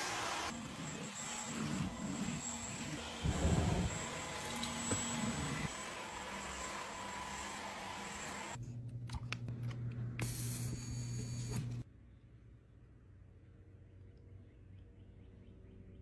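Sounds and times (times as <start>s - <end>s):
vacuum cleaner running: 0.0s - 8.6s.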